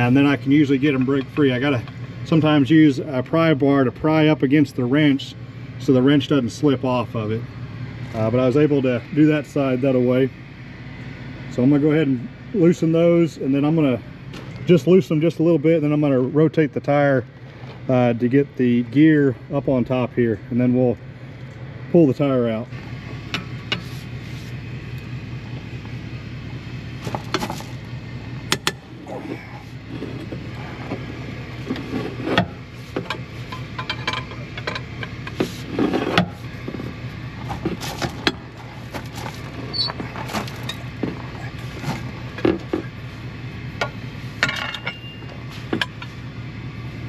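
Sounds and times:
steady low hum: 0:00.0 - 0:47.0
metal clanks and scrapes: 0:23.3 - 0:24.6, 0:27.0 - 0:27.8, 0:28.5 - 0:42.9, 0:43.8 - 0:46.2.

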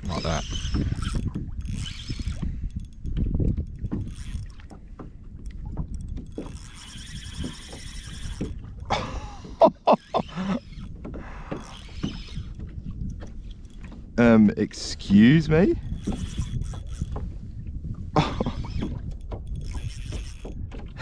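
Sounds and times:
fishing reel whirring: 0:00.0 - 0:04.8, 0:05.4 - 0:09.0, 0:09.9 - 0:14.0, 0:14.8 - 0:17.3, 0:18.2 - 0:20.9
squeaks and knocks against kayak: 0:00.0 - 0:14.4, 0:15.8 - 0:21.0.

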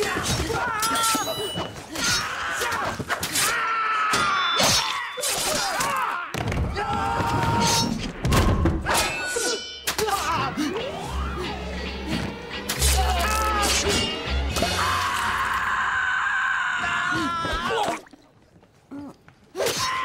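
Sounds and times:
thuds blows and crashes: 0:06.3 - 0:09.0.

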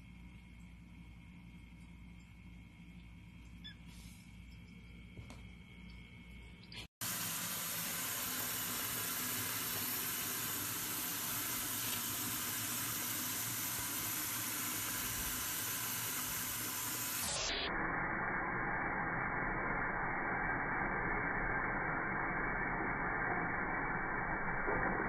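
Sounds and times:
tap water running into sink: 0:07.0 - 0:17.2.

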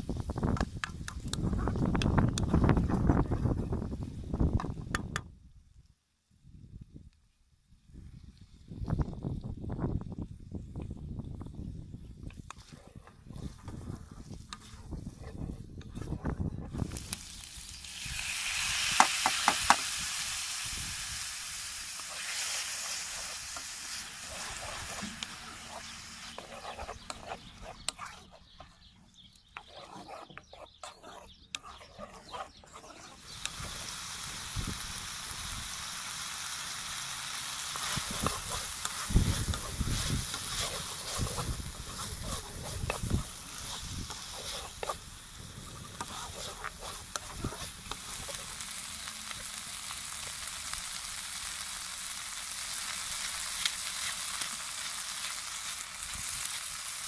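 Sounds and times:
food sizzling in a pan: 0:16.8 - 0:28.2, 0:32.1 - 0:57.0
wooden spoon scraping a pan: 0:22.0 - 0:28.9, 0:29.5 - 0:33.4, 0:37.8 - 0:45.0, 0:45.6 - 0:48.6.

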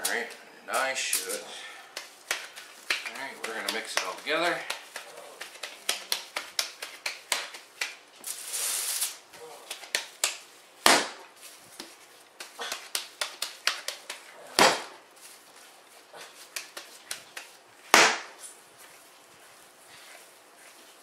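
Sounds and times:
hands slapping raw meat: 0:01.9 - 0:08.0, 0:09.6 - 0:15.0, 0:16.4 - 0:18.4
loud smacks of meat: 0:09.7 - 0:15.0, 0:16.5 - 0:18.4.

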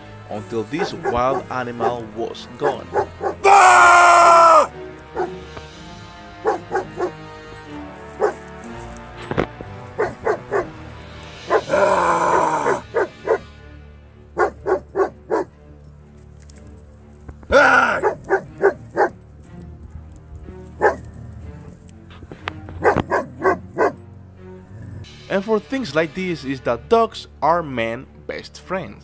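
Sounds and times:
background music: 0:00.0 - 0:29.0
dog barking: 0:00.8 - 0:02.0, 0:02.6 - 0:03.4, 0:05.1 - 0:05.4, 0:06.4 - 0:07.2, 0:08.2 - 0:08.4, 0:10.0 - 0:10.7, 0:11.5 - 0:11.8, 0:12.6 - 0:13.4, 0:14.4 - 0:15.5, 0:17.8 - 0:19.2, 0:20.8 - 0:21.1, 0:22.8 - 0:24.0
dog's harsh cries: 0:00.8 - 0:02.0, 0:02.6 - 0:05.3, 0:06.4 - 0:07.2, 0:08.2 - 0:08.4, 0:10.0 - 0:10.7, 0:11.5 - 0:13.4, 0:14.4 - 0:15.5, 0:17.5 - 0:19.2, 0:20.8 - 0:21.0, 0:22.8 - 0:24.0.

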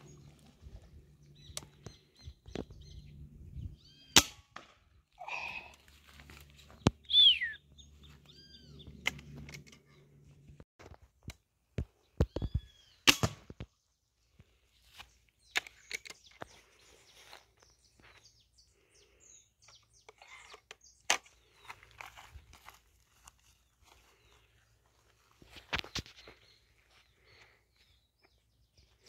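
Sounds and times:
bird whistled call: 0:07.0 - 0:07.6.

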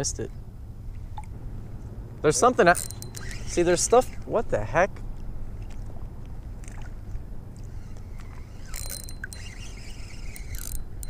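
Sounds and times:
spinning reel ticking: 0:02.6 - 0:04.3, 0:07.8 - 0:11.0
water moving around legs: 0:05.2 - 0:10.0.

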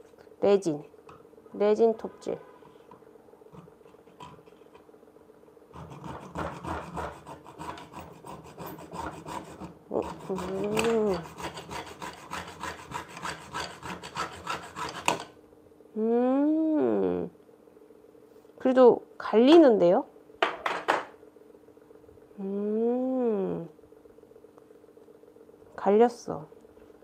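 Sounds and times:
hacksaw cutting resin: 0:05.8 - 0:15.3.

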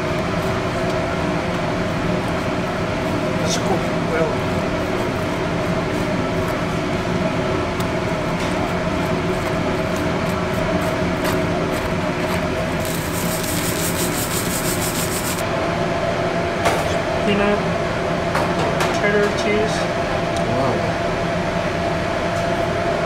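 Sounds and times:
kitchen hum: 0:00.0 - 0:15.8
quick scratchy strokes: 0:12.8 - 0:15.4.

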